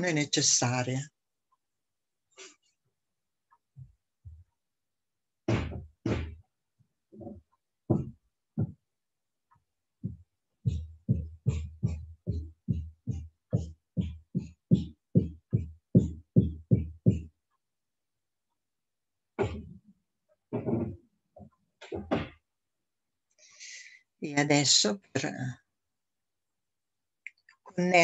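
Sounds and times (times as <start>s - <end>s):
dull thumps: 5.4s - 6.4s, 7.2s - 8.8s, 19.4s - 19.8s, 20.5s - 22.4s.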